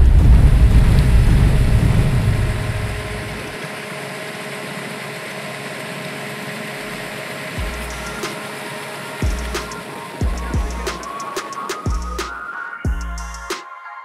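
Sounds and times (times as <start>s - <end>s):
deep rumble: 0.0s - 3.6s
engine-like drone: 0.0s - 13.5s
faint hum: 0.0s - 13.5s.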